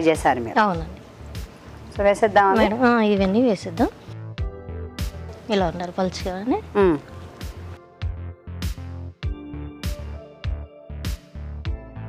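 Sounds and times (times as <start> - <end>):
electronic music with steady beat: 7.4 - 12.0.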